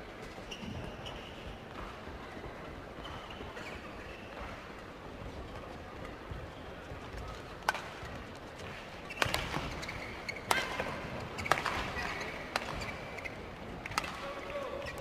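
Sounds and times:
shoes squeaking on court: 0:00.2 - 0:15.0
racket hitting shuttlecock: 0:07.6 - 0:08.0, 0:08.6 - 0:14.4.

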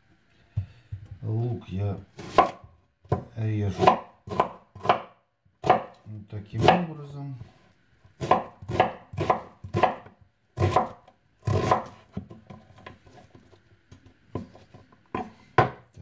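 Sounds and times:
knife chopping on wooden board: 0:02.2 - 0:06.0, 0:06.6 - 0:06.9, 0:08.2 - 0:12.3.

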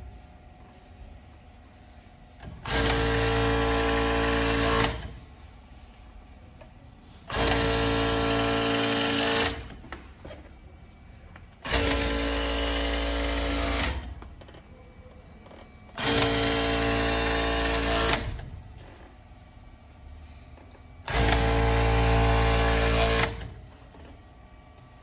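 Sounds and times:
overlock sewing machine running: 0:02.5 - 0:05.2, 0:07.3 - 0:09.8, 0:11.6 - 0:14.2, 0:15.9 - 0:18.5, 0:21.0 - 0:23.6.

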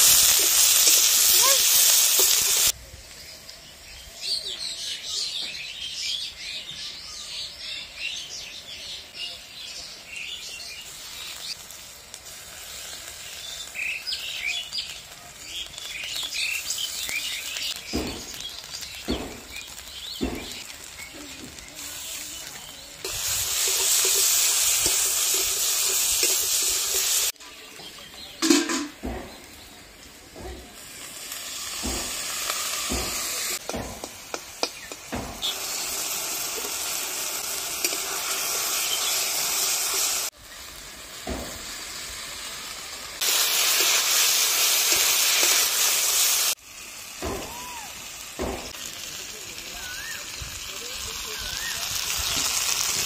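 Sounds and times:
onions sizzling in oil: 0:00.0 - 0:53.0
birds chirping: 0:13.2 - 0:30.6, 0:34.6 - 0:36.0, 0:37.8 - 0:39.7.

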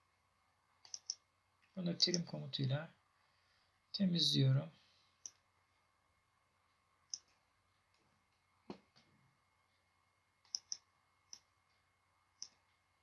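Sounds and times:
computer mouse clicks: 0:00.8 - 0:01.2, 0:07.1 - 0:07.4, 0:10.4 - 0:11.5, 0:12.4 - 0:12.6.

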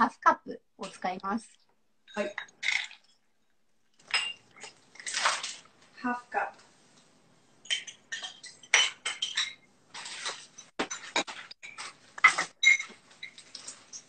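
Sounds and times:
dishes clinking: 0:02.1 - 0:03.3, 0:04.0 - 0:05.5, 0:07.6 - 0:14.0.

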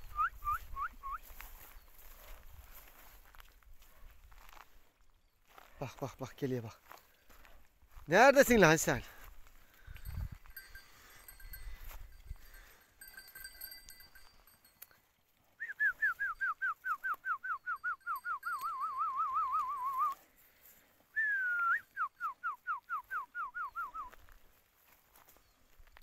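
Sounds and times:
person whistling: 0:00.0 - 0:01.4, 0:15.6 - 0:20.2, 0:21.1 - 0:24.2.

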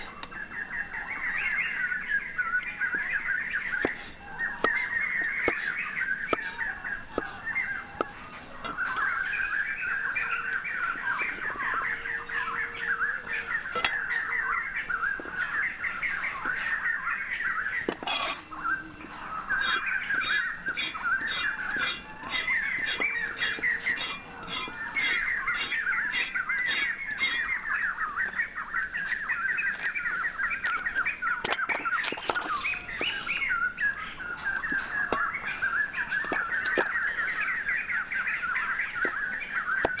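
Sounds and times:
birds chirping: 0:00.0 - 0:40.0
cleaver chopping on wooden block: 0:05.4 - 0:05.7, 0:19.6 - 0:27.4.

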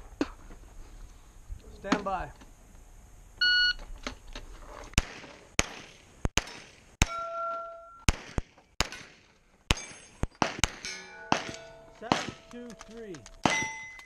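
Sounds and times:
pistol shots: 0:05.0 - 0:07.2, 0:08.1 - 0:14.0
steel targets clanging: 0:07.0 - 0:08.1, 0:09.7 - 0:14.0.

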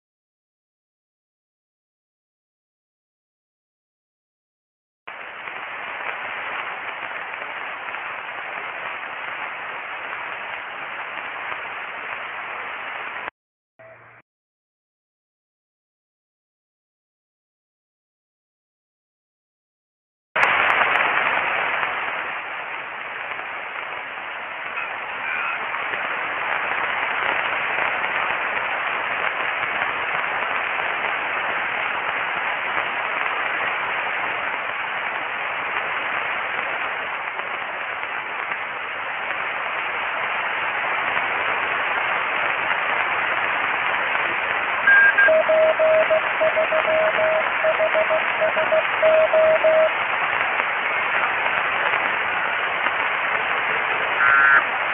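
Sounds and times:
radio static hiss: 0:05.1 - 0:14.0, 0:20.4 - 0:54.9
morse code beeps: 0:44.9 - 0:49.9, 0:54.2 - 0:54.6.

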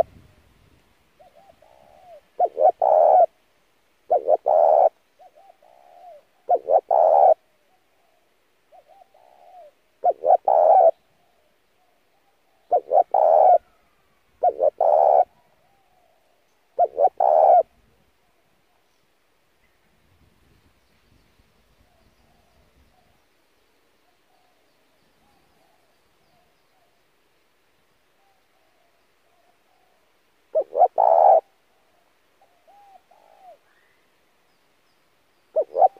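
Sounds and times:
dove cooing: 0:01.2 - 0:03.4, 0:04.1 - 0:13.8, 0:14.4 - 0:17.8, 0:28.2 - 0:33.6, 0:35.5 - 0:35.9.

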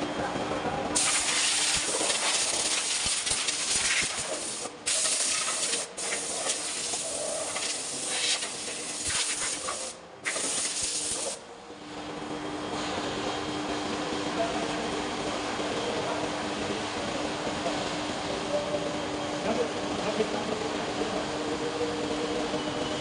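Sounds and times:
loud steady hissing: 0:01.0 - 0:11.4.

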